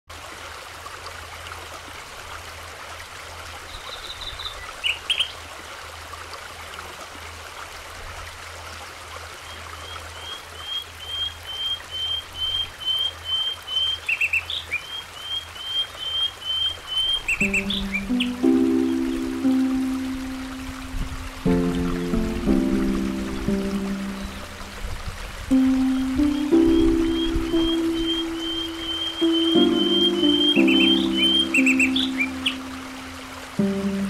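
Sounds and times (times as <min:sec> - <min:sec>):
bird chirping: 0:09.5 - 0:19.6, 0:23.3 - 0:24.6, 0:25.5 - 0:33.3
birds calling: 0:09.5 - 0:24.8, 0:25.5 - 0:34.0
steady background hiss: 0:16.3 - 0:34.0.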